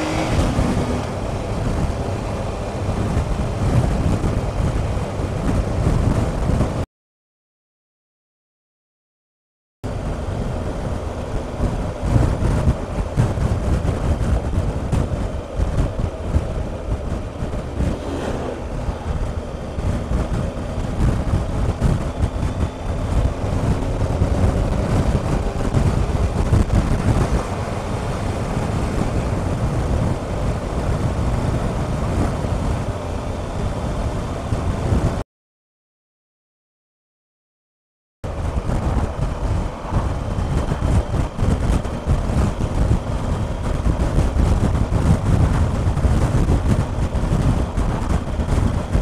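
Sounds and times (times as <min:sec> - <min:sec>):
wind buffeting microphone: 0:00.0 - 0:06.8, 0:09.9 - 0:35.2, 0:38.3 - 0:49.0
motorcycle engine pulling: 0:11.6 - 0:32.8.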